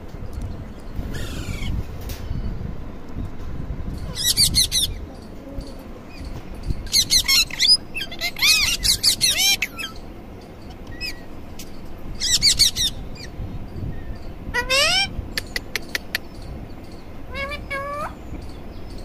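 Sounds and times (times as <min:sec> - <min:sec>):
parakeet screeching: 0:01.1 - 0:01.8, 0:04.1 - 0:05.0, 0:06.9 - 0:10.0, 0:12.2 - 0:13.3, 0:14.6 - 0:15.1, 0:17.3 - 0:18.2.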